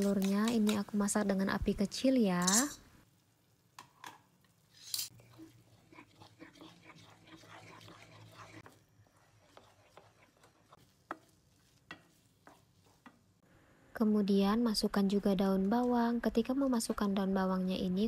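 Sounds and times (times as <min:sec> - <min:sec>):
spatula scraping a pan: 0:04.8 - 0:13.2.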